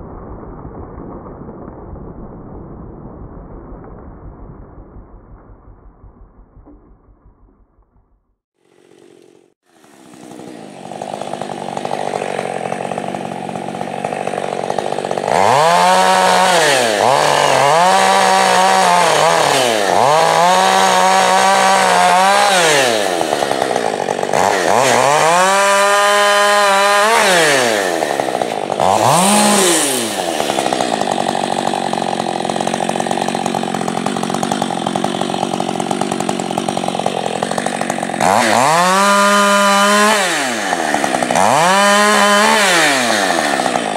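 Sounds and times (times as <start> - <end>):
chainsaw revving and cutting wood: 8.6 - 43.9.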